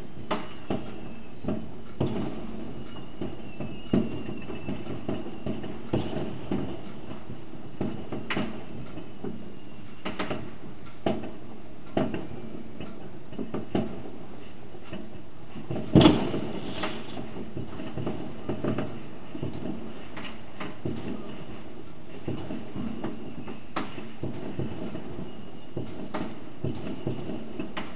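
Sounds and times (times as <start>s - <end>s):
distant fireworks bangs and pops: 0.0s - 27.9s
steady background hiss: 0.0s - 27.9s.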